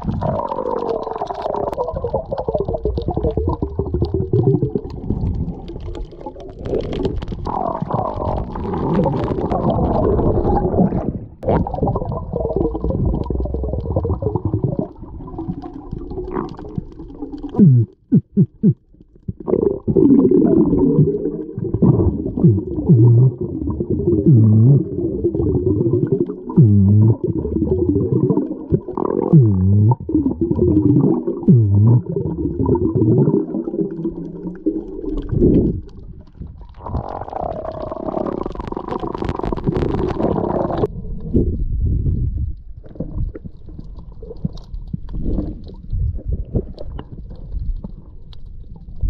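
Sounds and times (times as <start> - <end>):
muffled underwater grunting: 17.6 - 18.8, 19.4 - 33.6.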